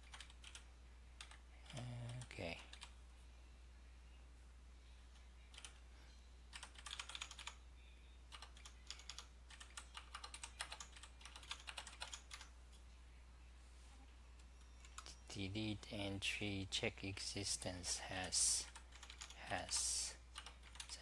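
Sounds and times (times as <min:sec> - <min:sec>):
computer keyboard typing: 0:00.0 - 0:03.0, 0:05.5 - 0:05.8, 0:06.5 - 0:07.6, 0:08.3 - 0:12.5, 0:14.4 - 0:15.2, 0:18.2 - 0:21.0
faint low hum: 0:00.0 - 0:21.0.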